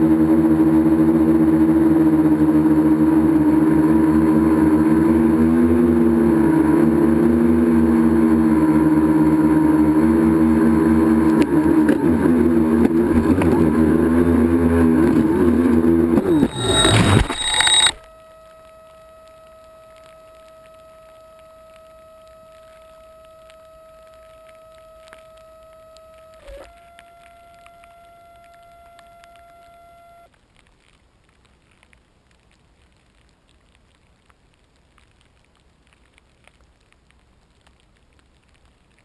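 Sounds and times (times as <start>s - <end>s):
drone motors buzzing: 0.0s - 30.3s
faint steady tone: 0.0s - 30.4s.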